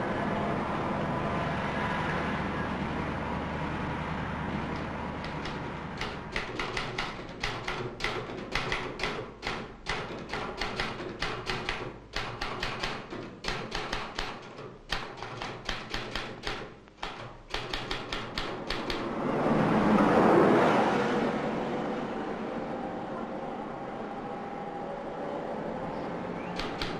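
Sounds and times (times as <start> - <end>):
typewriter keys striking: 5.2 - 19.1, 26.6 - 26.9.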